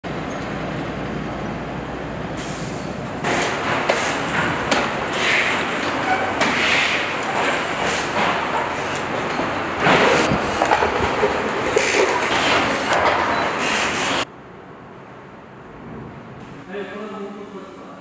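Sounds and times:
parts clicking and knocking: 3.2s - 13.5s.

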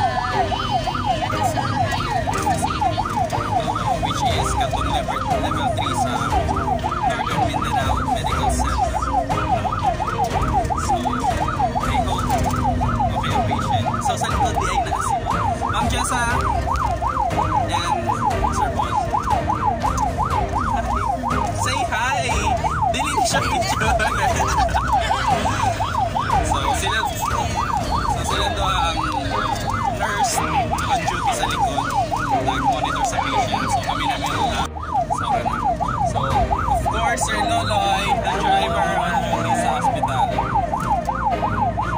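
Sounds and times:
ambulance siren yelping: 0.0s - 41.9s
road rumble: 0.0s - 41.9s
vehicle engine: 0.0s - 41.9s.

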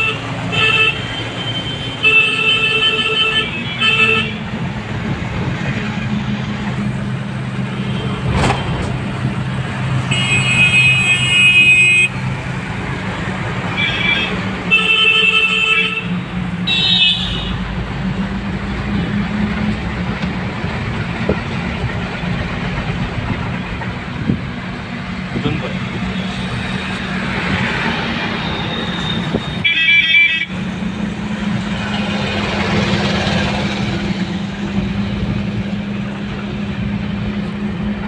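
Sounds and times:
vehicle horns honking: 0.0s - 4.5s, 10.0s - 12.3s, 13.7s - 17.6s, 28.6s - 30.7s
car engine drone and road noise: 0.0s - 38.0s.

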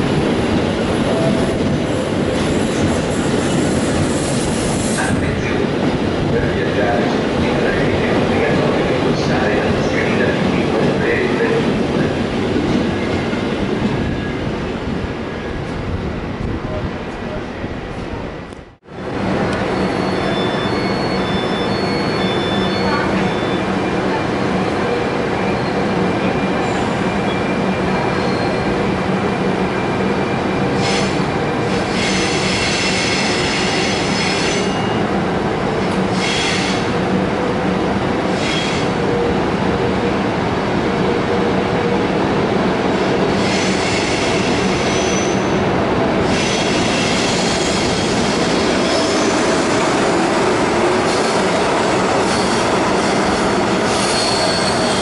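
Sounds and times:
train rumbling: 0.0s - 55.0s
train wheels squealing: 19.7s - 23.6s, 26.6s - 28.7s, 30.8s - 35.0s, 36.2s - 36.9s, 43.4s - 45.6s, 52.2s - 55.0s.

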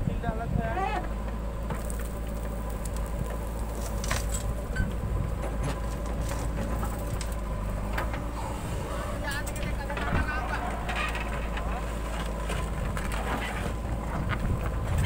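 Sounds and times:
diesel engine running under load: 0.0s - 15.0s
metal clanks and knocks: 9.2s - 15.0s.

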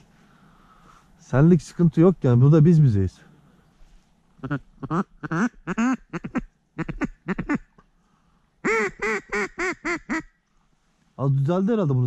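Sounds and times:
duck call quacks: 4.4s - 7.7s, 8.6s - 10.3s.

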